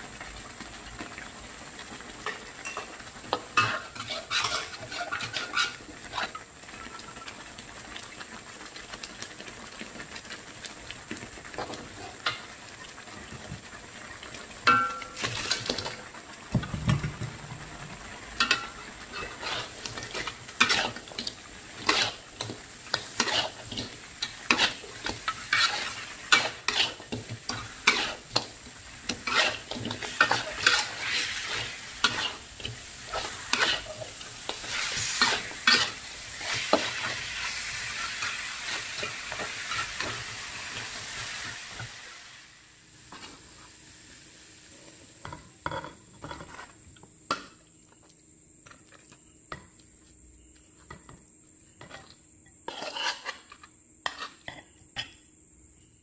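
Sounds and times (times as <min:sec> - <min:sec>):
frying sizzle: 0:00.0 - 0:54.5
spatula scraping a metal wok: 0:02.7 - 0:07.3, 0:18.4 - 0:41.9, 0:46.2 - 0:46.8, 0:51.9 - 0:55.2.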